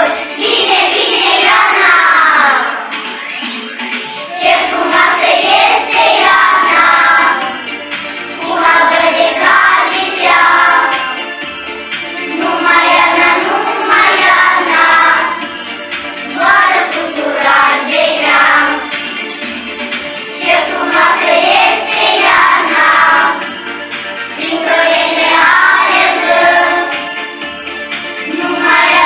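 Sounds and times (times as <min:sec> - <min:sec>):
children singing in unison: 0:00.0 - 0:03.0, 0:04.3 - 0:07.7, 0:08.3 - 0:11.2, 0:12.2 - 0:15.6, 0:16.3 - 0:19.1, 0:20.4 - 0:23.6, 0:24.4 - 0:27.2, 0:28.3 - 0:29.0
backing track music: 0:00.0 - 0:29.0.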